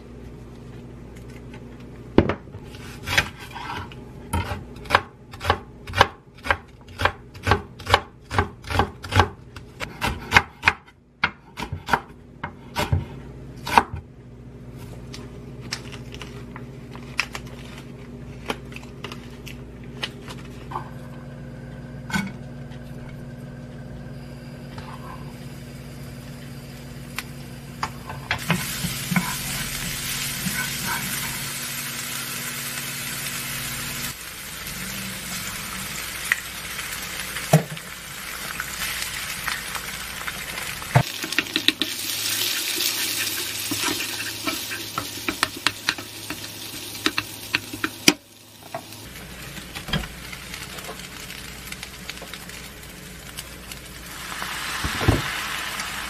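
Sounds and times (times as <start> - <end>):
knife chopping on wooden board: 4.4 - 14.0
food sizzling in frying pan: 25.3 - 56.0.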